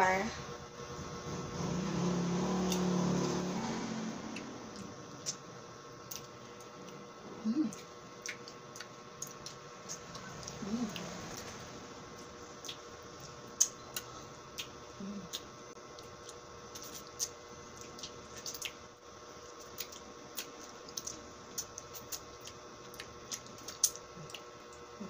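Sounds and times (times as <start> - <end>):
faint steady hum: 0.0 - 25.0
wet mouth clicks and smacks: 7.8 - 10.6, 12.6 - 18.8, 19.6 - 24.8.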